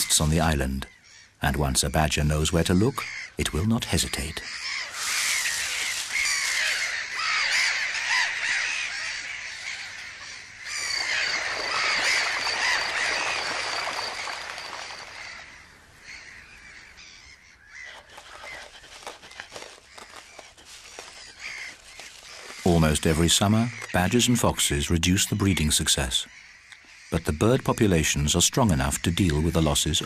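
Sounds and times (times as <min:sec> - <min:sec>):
gulls crying: 0:00.0 - 0:18.8.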